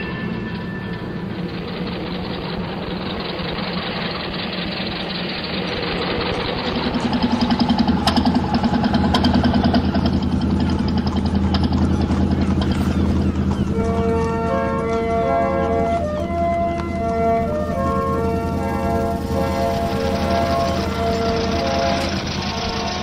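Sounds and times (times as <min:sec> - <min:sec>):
car engine idling with fast chug: 0:00.0 - 0:23.0
rumble of rolling traffic: 0:00.0 - 0:23.0.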